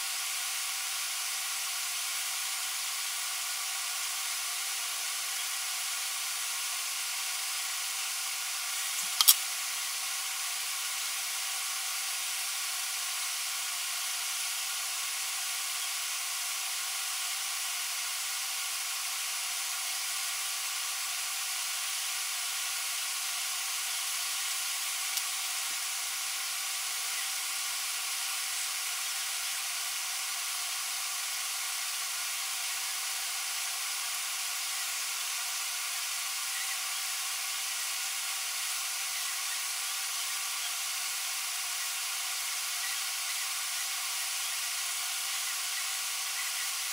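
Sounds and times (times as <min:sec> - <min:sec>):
steady hiss: 0:00.0 - 0:46.9
sharp click: 0:09.0 - 0:09.4.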